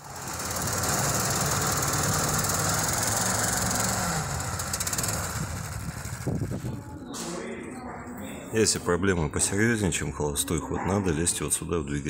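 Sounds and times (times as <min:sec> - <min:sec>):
small engine running: 0:00.0 - 0:06.8.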